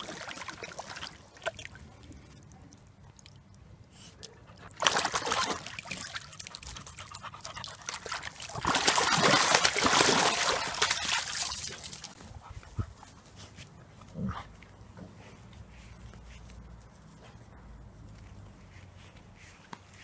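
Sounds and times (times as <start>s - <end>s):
water splashing: 0.0s - 3.6s, 4.6s - 12.2s.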